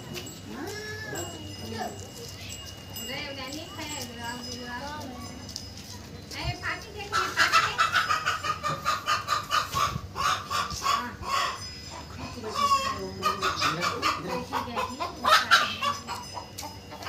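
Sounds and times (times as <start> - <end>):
chickens clucking: 6.2 - 17.0.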